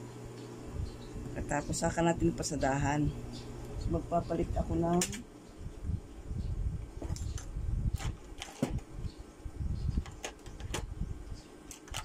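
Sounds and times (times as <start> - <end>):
clicks of small items handled: 11.7 - 12.0.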